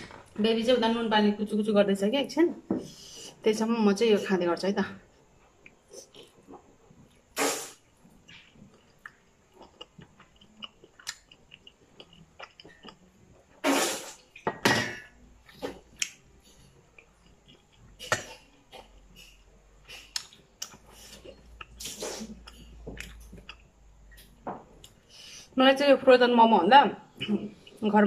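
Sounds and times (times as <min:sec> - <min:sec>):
person chewing: 0:05.5 - 0:14.4, 0:15.4 - 0:25.1
hissing from the mouth: 0:07.3 - 0:07.9, 0:13.6 - 0:14.3, 0:21.8 - 0:22.4.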